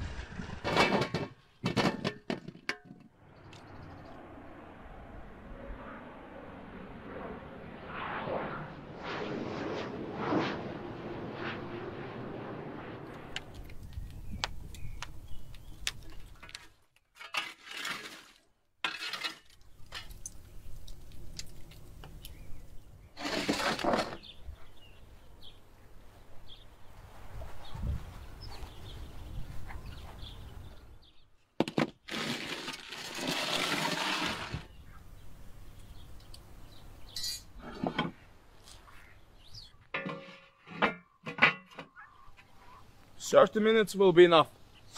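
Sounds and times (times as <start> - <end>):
pans and trays clattering: 0.6 - 2.9
wood embers crackling: 19.5 - 22.9.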